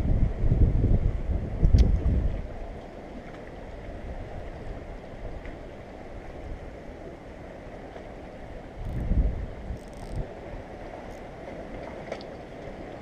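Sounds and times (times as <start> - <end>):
wind blowing across microphone: 0.0 - 3.1, 8.1 - 13.0.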